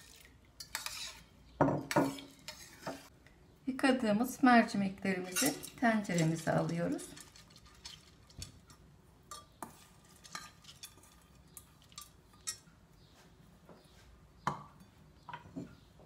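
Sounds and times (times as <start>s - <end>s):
metal bowl clinking against pot: 5.2s - 12.7s.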